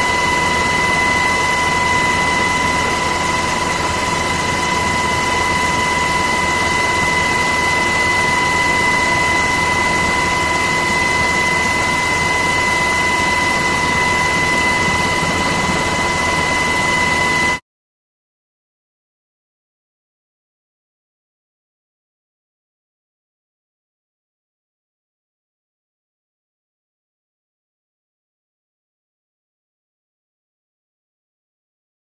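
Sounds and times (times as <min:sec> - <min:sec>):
turbine aircraft engine whine: 0:00.0 - 0:17.6.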